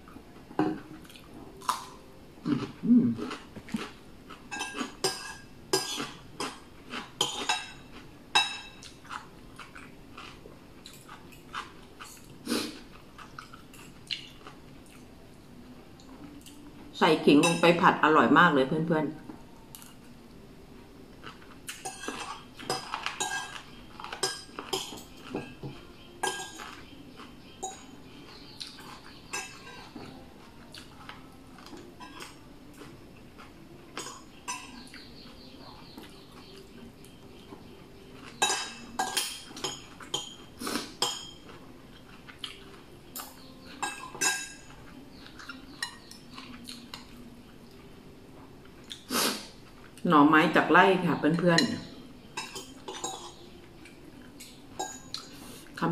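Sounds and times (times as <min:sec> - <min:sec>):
soft chewing: 0:00.0 - 0:16.9, 0:19.2 - 0:50.1, 0:51.8 - 0:55.8
spoon clinking on dishes: 0:04.5 - 0:09.0, 0:17.3 - 0:17.9, 0:21.7 - 0:30.1, 0:31.6 - 0:32.4, 0:34.0 - 0:35.4, 0:38.2 - 0:41.6, 0:43.2 - 0:47.2, 0:51.5 - 0:55.4.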